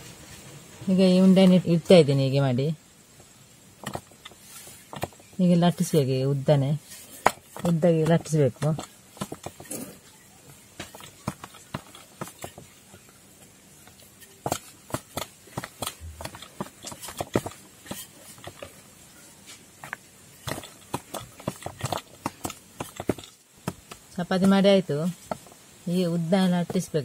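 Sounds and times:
rolling pin rolling dough: 0.2 - 27.0
rolling pin knocking on board: 7.2 - 9.8.

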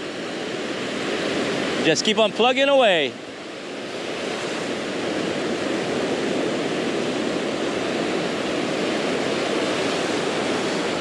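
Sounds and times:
waves washing up a beach: 0.0 - 11.0.

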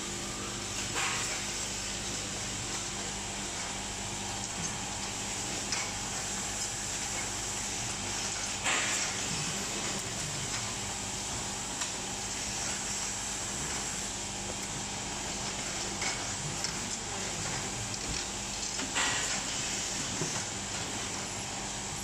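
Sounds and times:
machine humming and hissing: 0.0 - 22.0.

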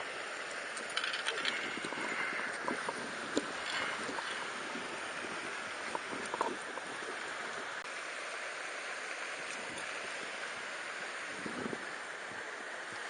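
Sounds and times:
stream running over stones: 0.0 - 13.0.

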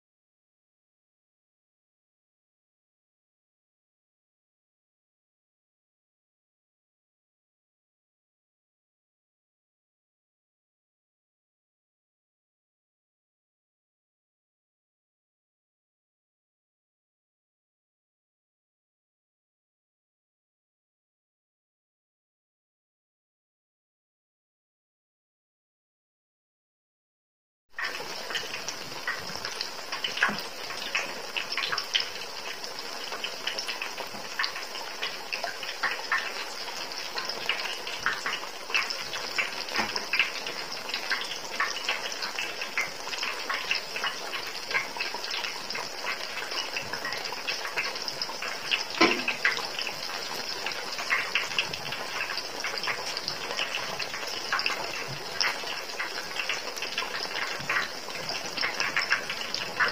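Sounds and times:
banana deep-frying in hot oil: 27.8 - 59.9
loud oil pop: 49.0 - 49.4.

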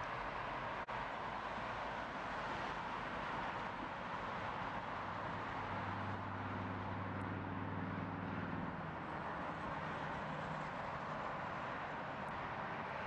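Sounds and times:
passing vehicle engine hum: 4.6 - 13.0.

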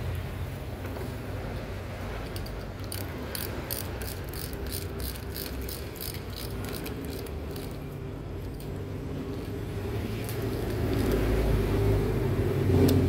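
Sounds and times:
ratchet wrench clicking: 2.2 - 8.7, 10.2 - 11.3.

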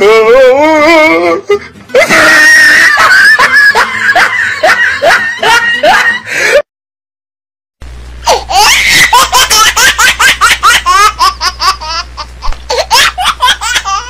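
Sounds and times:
high-pitched laughter: 1.9 - 6.6, 8.3 - 14.0
low steady hum: 7.8 - 14.0.

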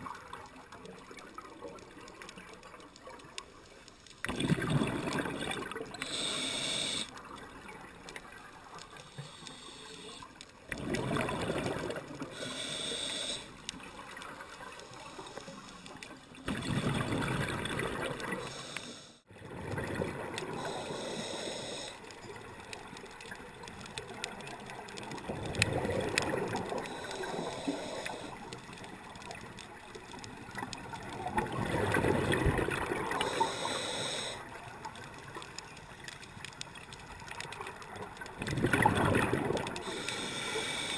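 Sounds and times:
exhaled bubbles rushing: 4.2 - 6.0, 10.7 - 12.3, 16.4 - 18.5, 19.3 - 20.7, 25.2 - 27.0, 31.0 - 33.4, 38.2 - 39.9
diver breathing through regulator: 6.0 - 7.2, 9.0 - 13.7, 18.2 - 19.3, 20.5 - 22.1, 26.8 - 28.6, 33.1 - 34.6, 39.7 - 40.9.

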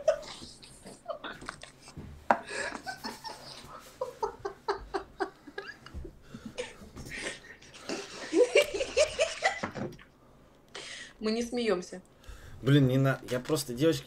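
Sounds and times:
woman laughing: 0.0 - 1.6, 2.5 - 6.0, 6.6 - 9.8.

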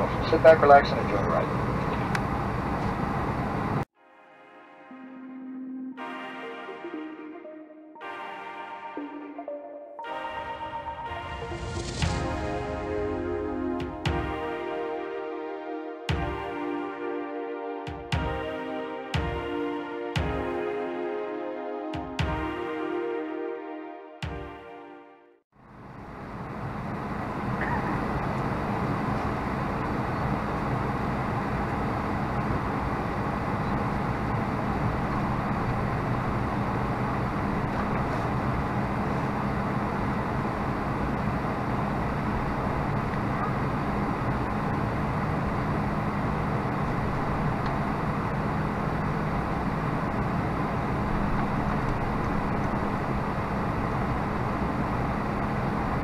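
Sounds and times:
airplane cabin noise: 0.0 - 3.9, 25.7 - 56.0.

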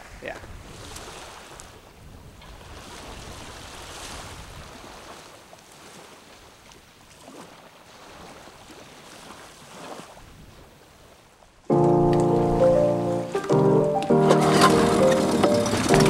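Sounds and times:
small waves lapping on beach: 0.1 - 11.7.

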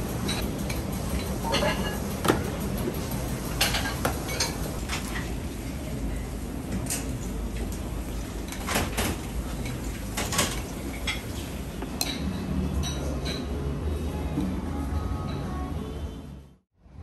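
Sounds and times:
dishes and utensils clattering: 0.2 - 2.6, 3.5 - 5.3, 8.4 - 13.6.

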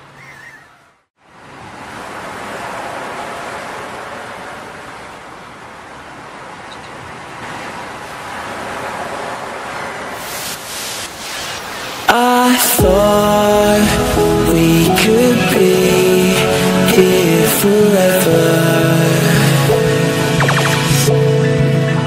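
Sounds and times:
water rushing like surf: 1.2 - 21.2
music: 12.1 - 22.0.

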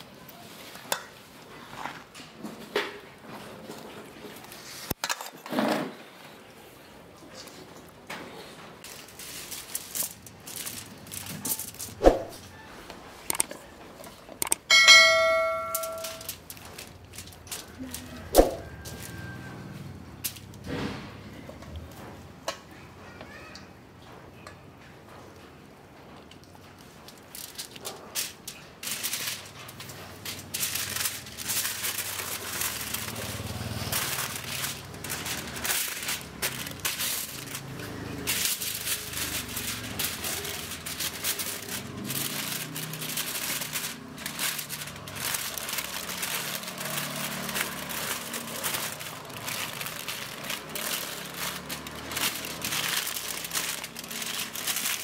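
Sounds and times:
aluminium foil crinkling: 7.2 - 12.5, 13.3 - 19.4, 20.1 - 20.7, 26.2 - 55.0.

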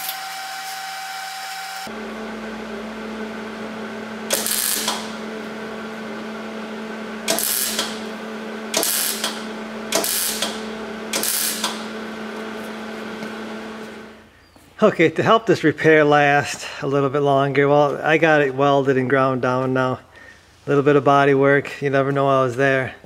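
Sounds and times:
welding arc crackling: 0.0 - 14.2
welder hum: 0.0 - 14.3.

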